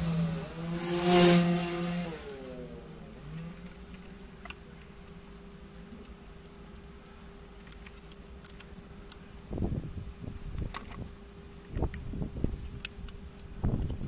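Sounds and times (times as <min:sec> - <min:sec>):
scooter engine revving: 0:00.0 - 0:03.7.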